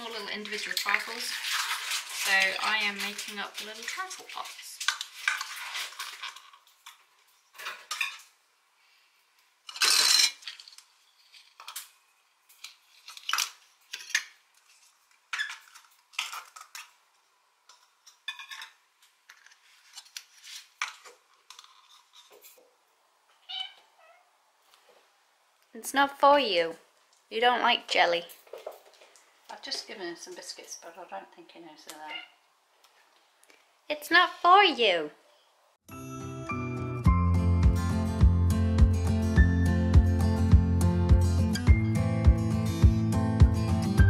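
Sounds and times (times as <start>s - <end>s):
plastic cups clicking and clattering: 0.0s - 8.3s, 9.7s - 11.9s, 12.6s - 17.0s.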